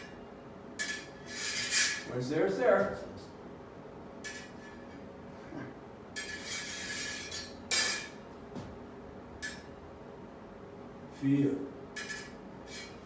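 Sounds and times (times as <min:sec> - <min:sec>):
sword blades scraping: 0:00.8 - 0:02.1, 0:06.2 - 0:08.2, 0:12.0 - 0:13.0
metal clash: 0:06.2 - 0:08.2, 0:12.0 - 0:13.0.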